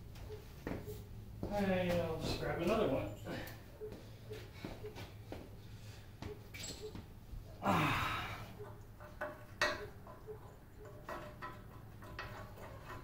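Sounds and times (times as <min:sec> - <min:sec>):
man sighing: 0:07.6 - 0:08.6.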